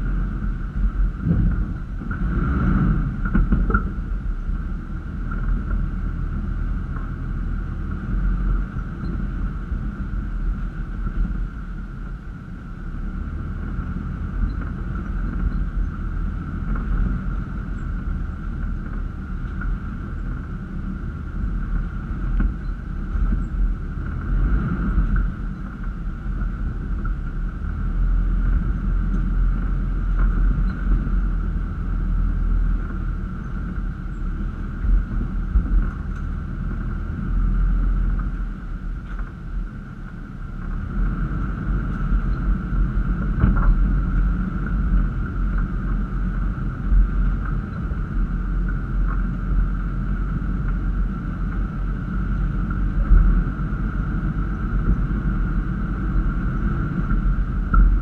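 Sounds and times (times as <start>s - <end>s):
truck engine rumbling: 0.0s - 58.0s
knocks from rough ground: 1.2s - 4.1s.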